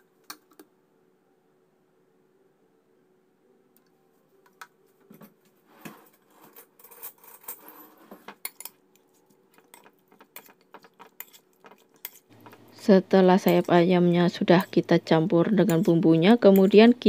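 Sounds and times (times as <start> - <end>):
metal spoon clinking in ceramic bowl: 9.5 - 12.6.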